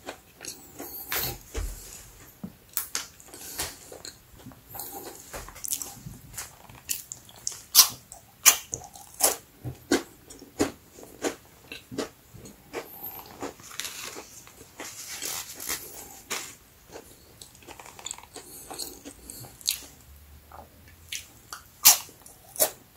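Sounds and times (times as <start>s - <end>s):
crunchy crackers being chewed: 2.8s - 20.0s.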